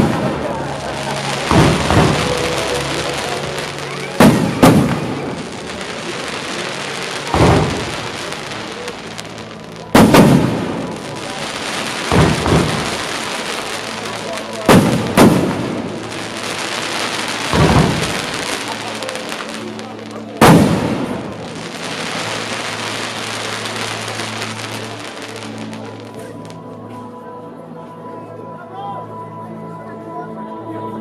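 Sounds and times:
steady hiss: 0.0s - 26.4s
firework shells bursting: 14.7s - 19.5s.

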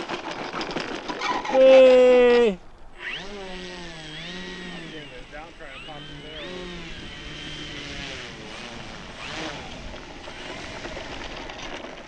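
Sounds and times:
wind noise: 0.0s - 12.0s
electric motor and propeller whine: 2.8s - 12.0s.

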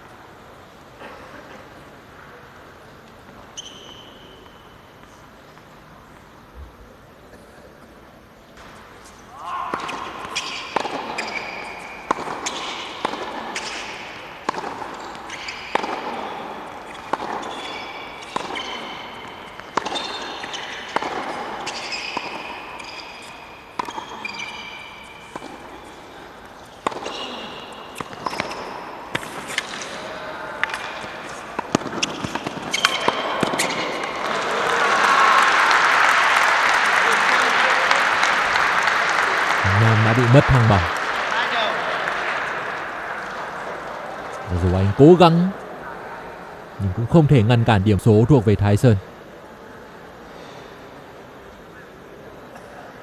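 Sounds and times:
sneakers squeaking on court: 3.4s - 5.0s, 8.6s - 30.0s, 30.7s - 34.0s
tennis ball bouncing: 9.8s - 24.5s, 26.7s - 27.3s, 28.0s - 29.9s, 30.6s - 33.7s.

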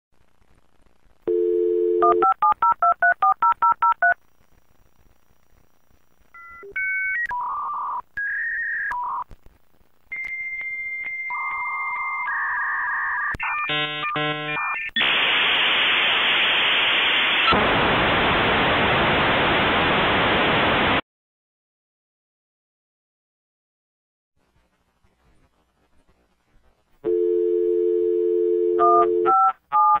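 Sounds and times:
dial tone: 1.3s - 2.4s, 27.0s - 30.0s
modem tones and warbles: 10.1s - 15.6s
loud modem hiss: 13.8s - 21.0s.

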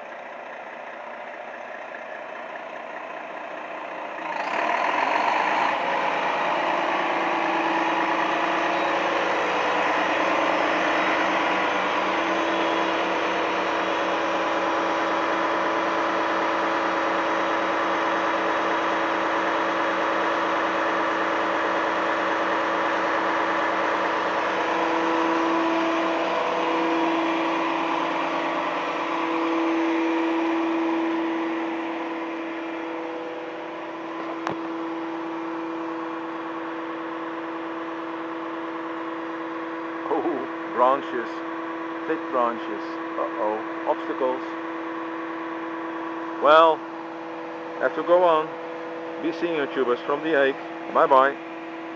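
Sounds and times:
diesel engine running: 0.0s - 51.9s
hydraulic whine: 4.4s - 42.5s.

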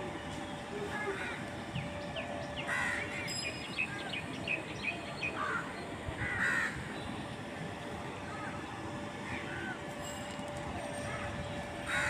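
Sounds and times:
crows cawing: 2.7s - 3.0s, 5.4s - 6.8s.

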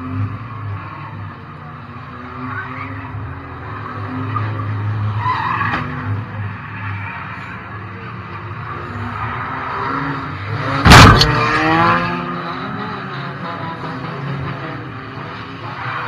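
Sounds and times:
race car engine from cabin: 7.4s - 16.0s.

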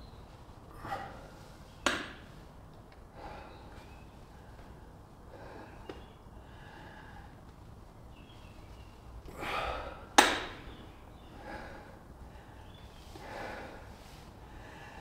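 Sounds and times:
man exhaling forcefully: 9.3s - 10.2s.

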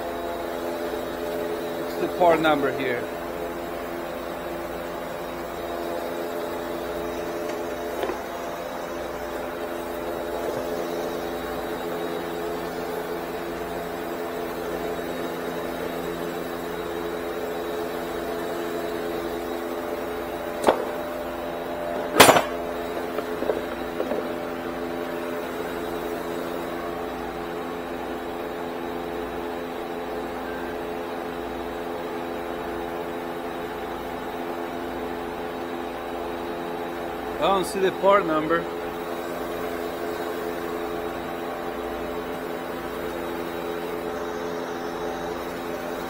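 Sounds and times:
steady machine hum: 0.0s - 46.0s
sharp knocks: 22.1s - 24.3s.

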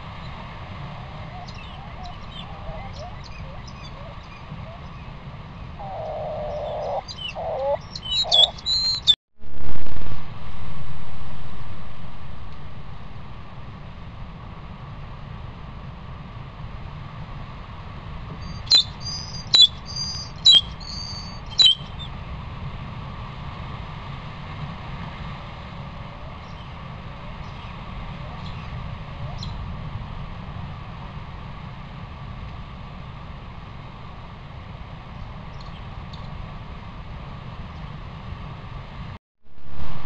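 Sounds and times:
microphone hiss: 0.0s - 40.0s
high-pitched chirps: 6.4s - 9.2s.

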